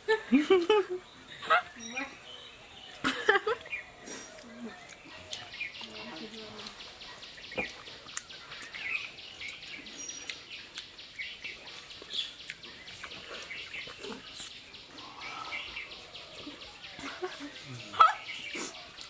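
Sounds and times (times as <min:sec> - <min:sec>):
birds chirping: 0:00.1 - 0:19.0
wet chewing and slurping: 0:11.7 - 0:15.2.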